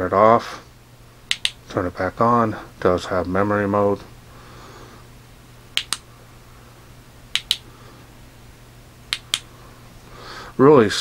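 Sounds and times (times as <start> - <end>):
flashlight switch clicking: 1.3 - 1.6, 5.8 - 6.0, 7.4 - 7.6, 9.1 - 9.5.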